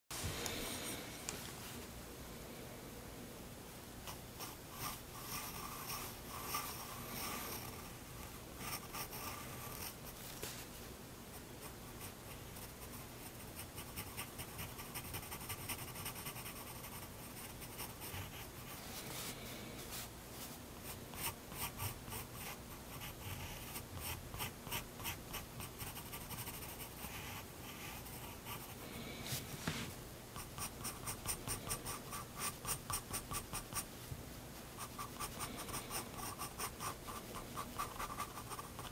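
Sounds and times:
pencil scratching on paper: 4.4 - 7.9, 12.6 - 18.5, 21.1 - 28.8, 30.4 - 33.9, 34.8 - 38.9.

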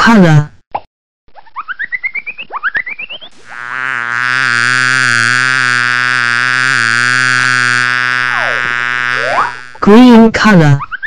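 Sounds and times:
cartoon bee buzzing: 3.3 - 9.9.

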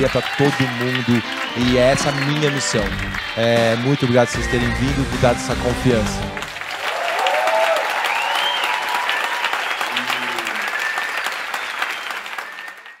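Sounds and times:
audience applauding: 0.0 - 13.0
high whistles: 8.0 - 9.5, 10.5 - 13.0.

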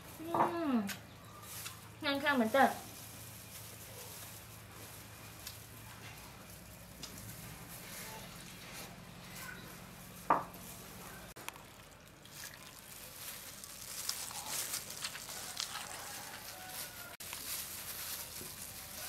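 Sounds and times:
small crackles: 0.0 - 19.0
person chewing food: 11.3 - 17.4.

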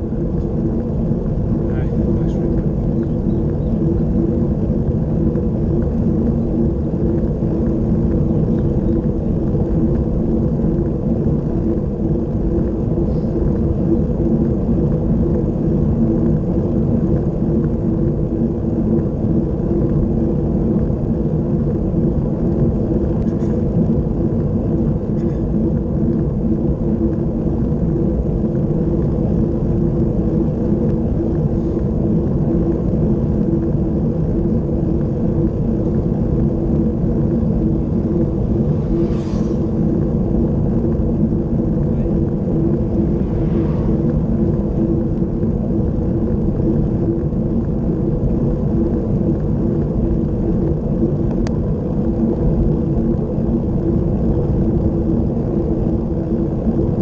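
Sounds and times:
wind noise: 0.0 - 57.0
bicycle tyre noise: 34.3 - 47.7.

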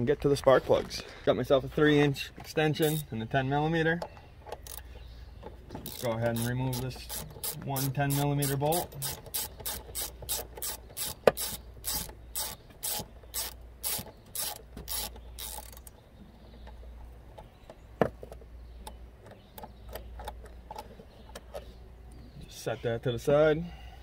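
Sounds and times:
ratchet clicking: 4.6 - 4.8, 5.8 - 16.0.

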